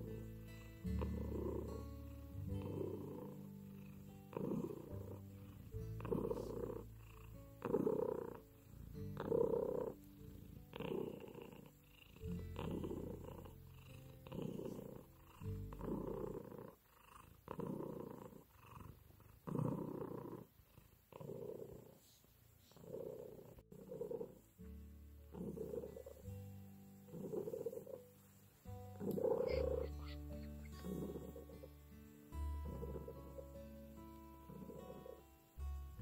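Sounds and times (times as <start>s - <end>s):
cat purring: 0.0s - 36.0s.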